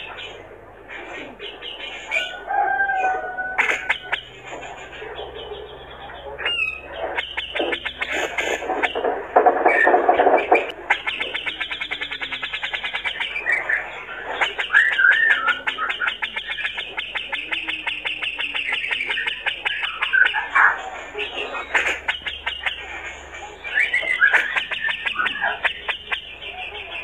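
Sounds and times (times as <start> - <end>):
bird rattling chatter song: 6.4 - 26.4
bird warbled whistle: 23.6 - 26.3.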